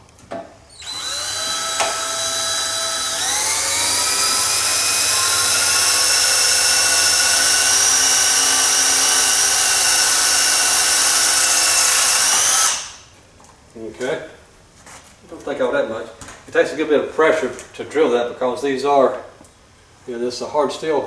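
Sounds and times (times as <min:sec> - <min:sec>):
cordless drill boring into steel: 0:00.7 - 0:13.1.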